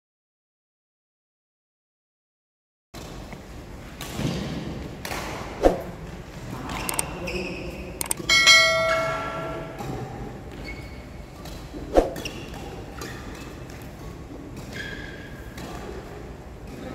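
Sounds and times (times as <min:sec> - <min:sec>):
sharp thud: 0:05.6 - 0:06.0, 0:11.9 - 0:12.2
notification bell ding: 0:08.3 - 0:09.6.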